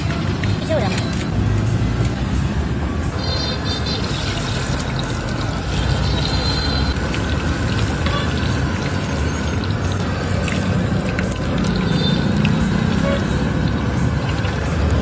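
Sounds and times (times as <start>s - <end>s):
eggs sizzling in hot oil: 4.0s - 15.0s.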